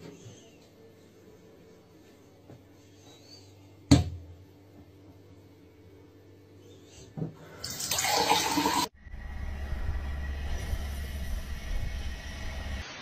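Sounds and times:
water gushing from tap into sink: 0:07.7 - 0:08.9
steady low rumble: 0:09.0 - 0:12.8.

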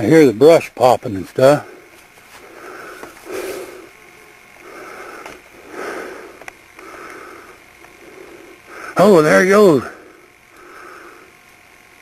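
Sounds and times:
man breathing hard: 0:01.6 - 0:04.0, 0:04.6 - 0:09.0, 0:09.8 - 0:11.4.

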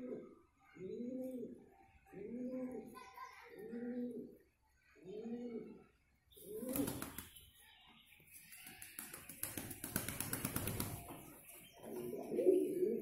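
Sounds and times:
wings rustling and scuffling: 0:06.6 - 0:07.4, 0:08.6 - 0:12.8
pigeon cooing: 0:11.8 - 0:13.0.

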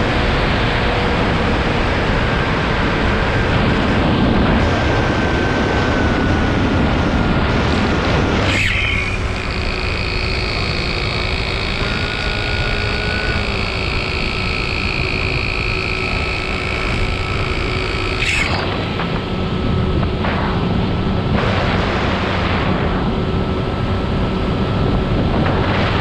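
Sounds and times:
drone propellers whining: 0:00.0 - 0:26.0
wind rumble on microphone: 0:00.0 - 0:26.0.

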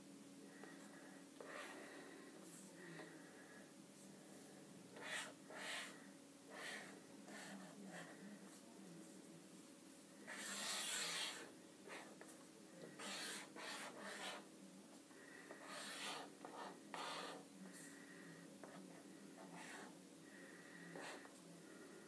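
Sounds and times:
marker rasping on paper: 0:05.0 - 0:08.1, 0:10.3 - 0:12.2, 0:13.0 - 0:14.4, 0:15.5 - 0:17.4, 0:18.6 - 0:19.9, 0:21.0 - 0:21.3.

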